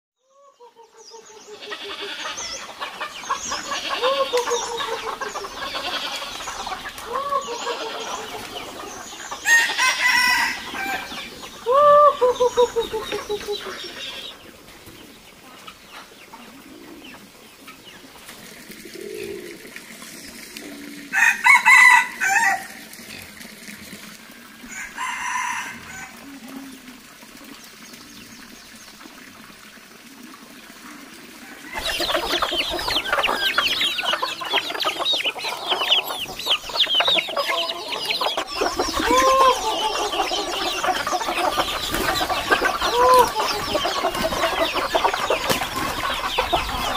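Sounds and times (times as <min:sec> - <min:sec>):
chickens clucking: 0:00.3 - 0:27.8, 0:29.7 - 0:46.9
roosters crowing: 0:01.5 - 0:14.4, 0:21.1 - 0:22.8, 0:24.6 - 0:26.3, 0:31.5 - 0:46.9.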